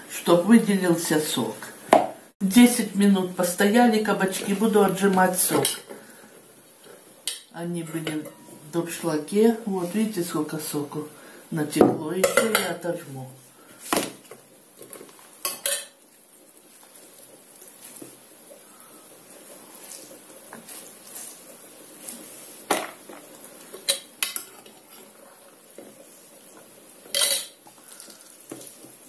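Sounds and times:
wet rustle of squeezed vegetable: 19.2 - 22.7.

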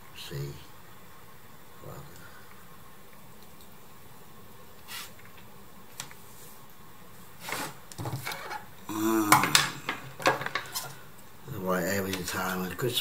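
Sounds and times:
knocks and rustles on a table: 7.4 - 8.6, 9.4 - 10.9.

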